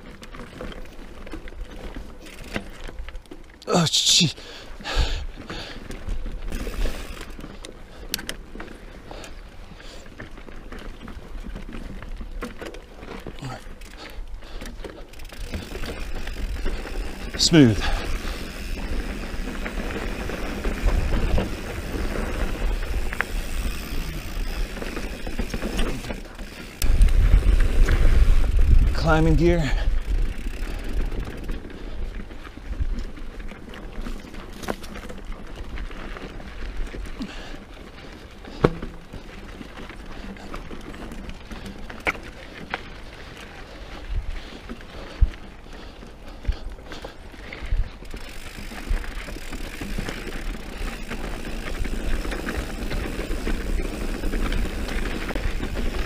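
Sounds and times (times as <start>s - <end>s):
bike rattling: 0.0s - 56.0s
bike tyres on packed dirt: 0.0s - 56.0s
bike knocking over rocks: 38.4s - 42.3s.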